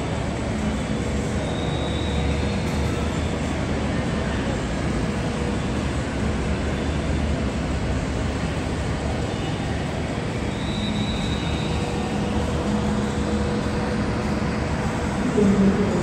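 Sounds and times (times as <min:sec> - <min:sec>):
jet engines roaring: 0:00.0 - 0:16.0
faint high whine: 0:00.1 - 0:16.0.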